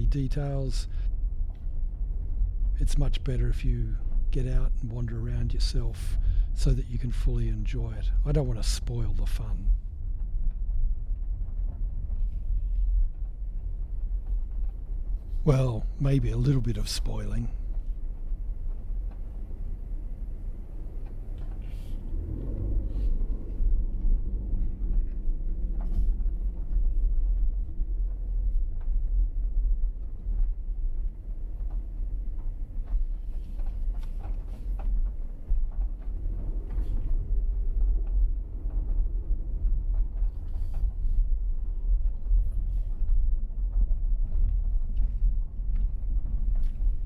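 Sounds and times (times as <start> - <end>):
car road and engine rumble: 0.0 - 47.0
gravel ticks and knocks: 22.5 - 47.0.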